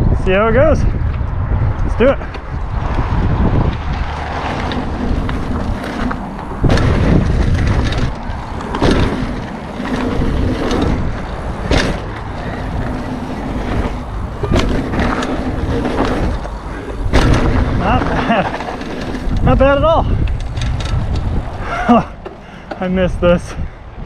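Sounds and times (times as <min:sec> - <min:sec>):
bike tyres rumbling on dirt: 0:00.0 - 0:24.0
rushing air: 0:00.0 - 0:24.0
bike landing thumps: 0:02.8 - 0:19.5.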